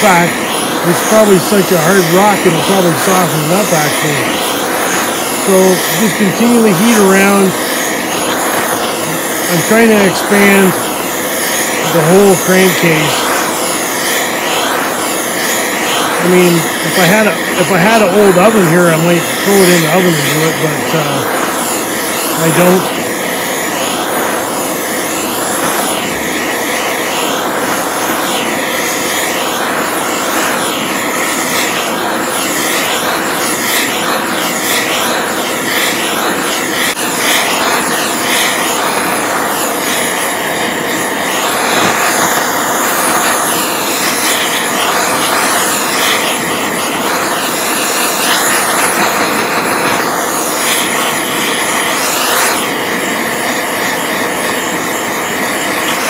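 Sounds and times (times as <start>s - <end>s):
gas torch hissing: 0.0s - 56.0s.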